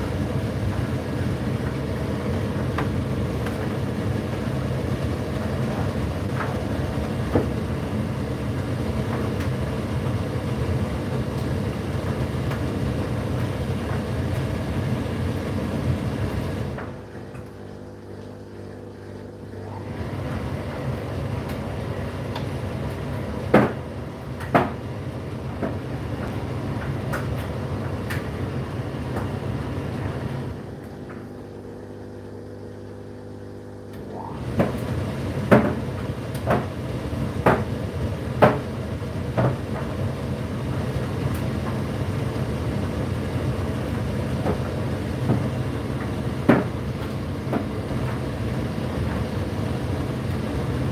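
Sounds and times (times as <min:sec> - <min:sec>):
tumble dryer motor and drum hum: 0:00.0 - 0:50.9
sharp knocks in dryer: 0:02.7 - 0:03.9, 0:05.6 - 0:07.7, 0:23.4 - 0:28.3, 0:34.4 - 0:40.1, 0:44.3 - 0:48.4.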